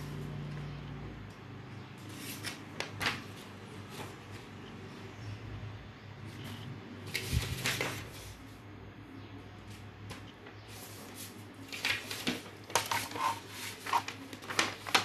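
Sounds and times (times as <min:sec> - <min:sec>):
paper sheets rustling: 0:02.0 - 0:04.5, 0:07.0 - 0:08.6, 0:09.7 - 0:15.0.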